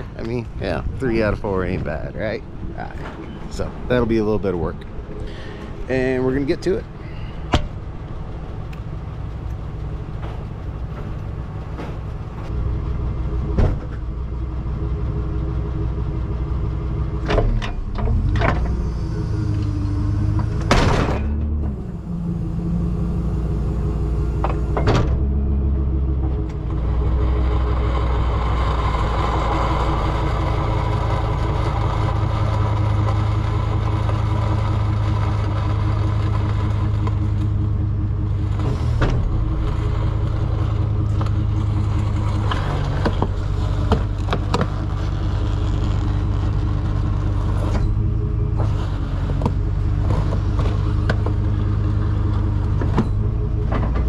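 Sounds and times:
truck engine running: 0.0s - 54.0s.

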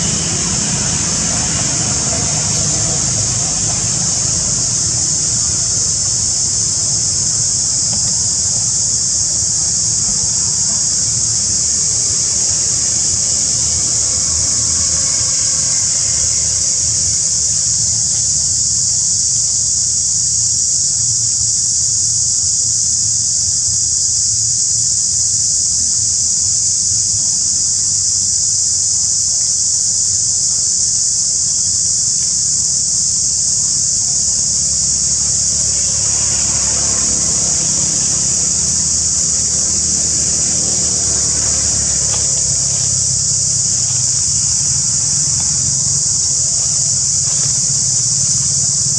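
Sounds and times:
cicadas droning: 0.0s - 48.9s.

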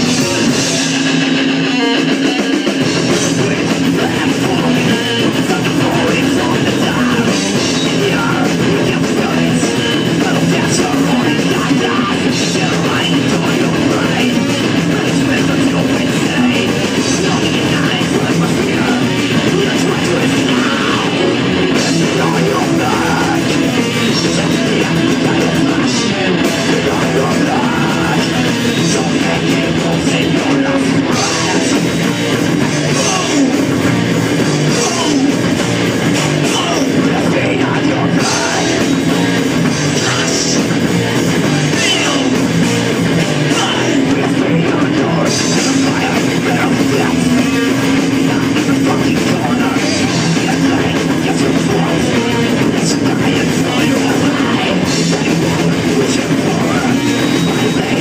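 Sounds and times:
metal band playing live: 0.0s - 58.0s.

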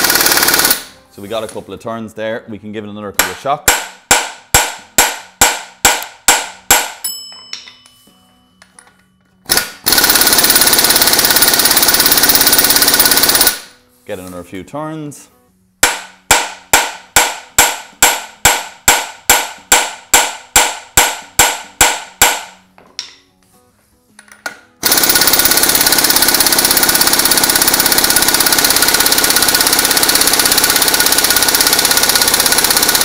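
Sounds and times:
pneumatic impact wrench hammering: 0.0s - 1.0s, 9.5s - 13.8s, 15.8s - 22.5s, 24.8s - 33.0s.

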